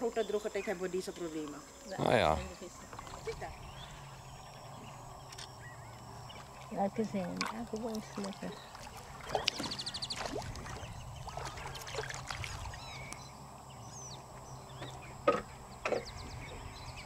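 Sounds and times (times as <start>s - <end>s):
low steady hum: 0.0s - 17.0s
birds chirping and whistling: 2.8s - 6.7s, 8.4s - 17.0s.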